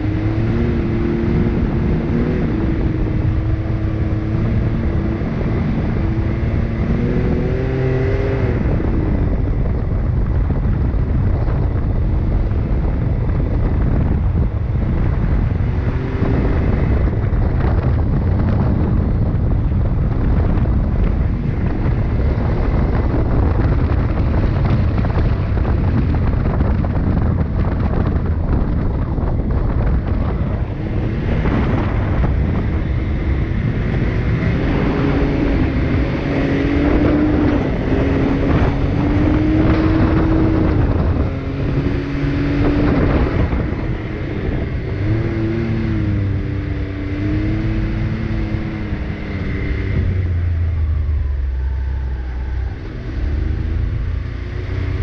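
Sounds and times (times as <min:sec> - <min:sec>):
off-road vehicle engine revving: 0:00.0 - 0:55.0.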